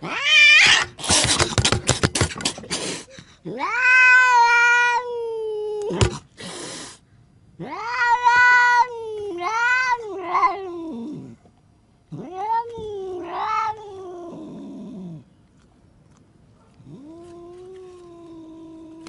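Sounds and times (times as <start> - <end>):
cat yowling: 0.0 - 1.0, 3.5 - 6.1, 7.6 - 11.4, 12.1 - 15.2.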